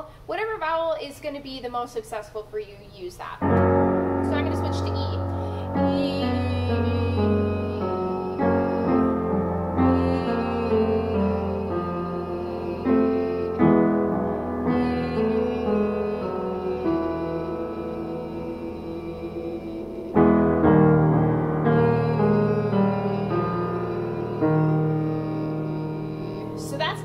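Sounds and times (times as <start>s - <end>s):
upright piano chords: 3.4s - 27.0s.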